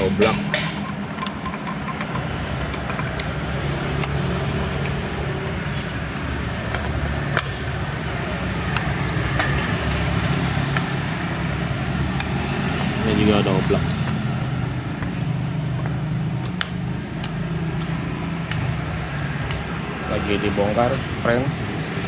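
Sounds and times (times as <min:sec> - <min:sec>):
metal parts clinking: 0:00.0 - 0:05.0.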